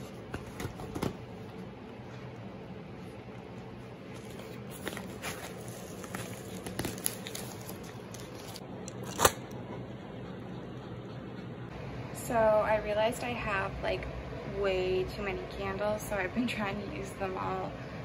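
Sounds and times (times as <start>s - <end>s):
steady low hum: 0.0s - 18.0s
paper mailer crinkling and tearing: 4.2s - 9.4s.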